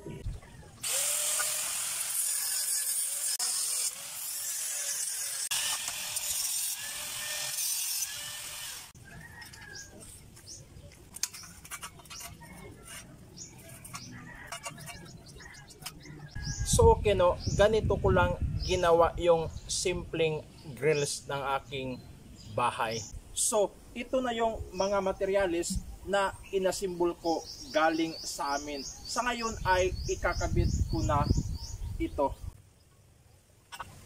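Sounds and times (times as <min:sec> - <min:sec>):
angle grinder cutting steel: 0:00.8 - 0:09.0
birds chirping: 0:09.0 - 0:33.0.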